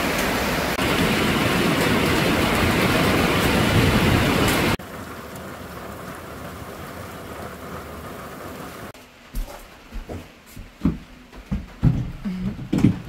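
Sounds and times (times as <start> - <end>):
rain falling: 0.0 - 9.3
dull knocks: 9.4 - 13.0.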